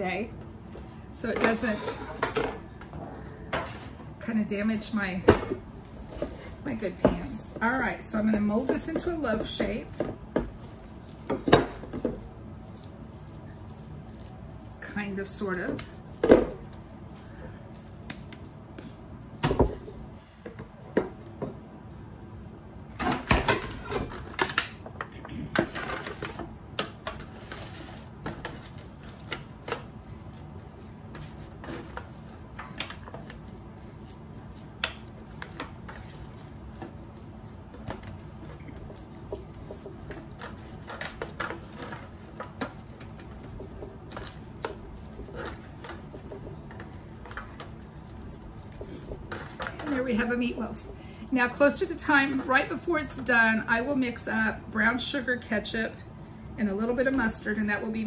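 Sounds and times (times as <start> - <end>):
foil pan crinkling: 5.7 - 18.5, 27.2 - 50.5.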